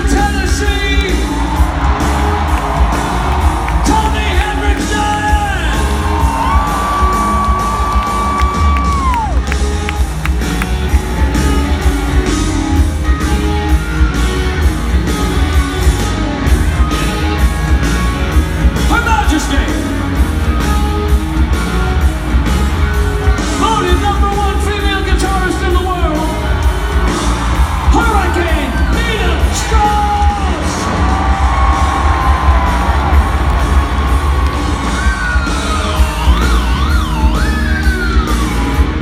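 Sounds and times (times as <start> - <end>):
distorted electric guitars: 0.0 - 39.0
live rock band playing: 0.0 - 39.0
pounding drums: 22.0 - 39.0.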